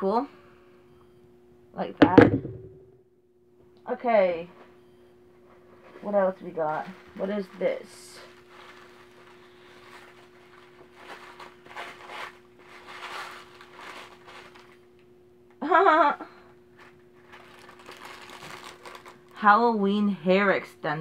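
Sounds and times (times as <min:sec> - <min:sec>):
wrapping paper rustling: 0:06.5 - 0:14.9, 0:16.8 - 0:19.4.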